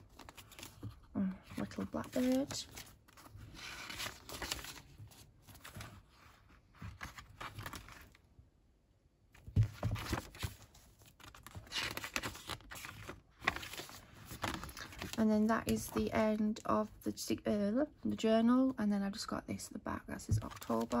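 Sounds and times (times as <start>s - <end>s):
paper pages rustling: 0.0s - 8.2s, 9.4s - 16.6s, 20.3s - 21.0s.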